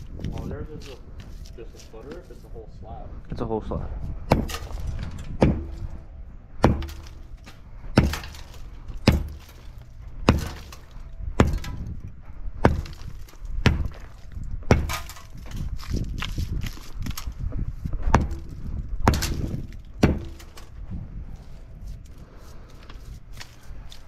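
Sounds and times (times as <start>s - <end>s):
sledgehammer striking concrete: 4.2s - 6.0s, 6.6s - 7.3s, 7.9s - 12.0s, 12.6s - 15.7s, 18.1s - 20.8s.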